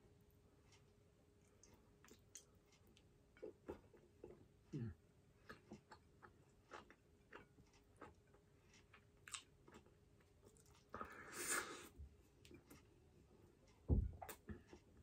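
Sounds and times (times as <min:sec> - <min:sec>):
person chewing: 0:01.4 - 0:04.5, 0:05.3 - 0:12.9.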